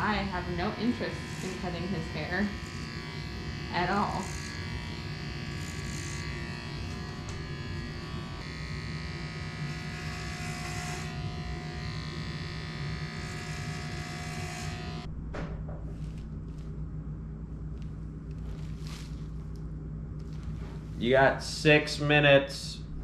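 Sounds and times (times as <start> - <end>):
electric hair clippers buzzing: 0.0 - 15.1.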